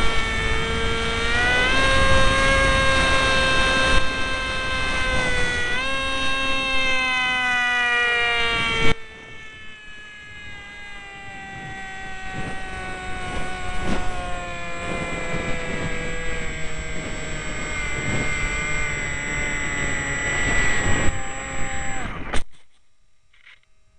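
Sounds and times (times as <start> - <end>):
electric motor whine: 0.0 - 22.7
wind rush: 10.4 - 22.1.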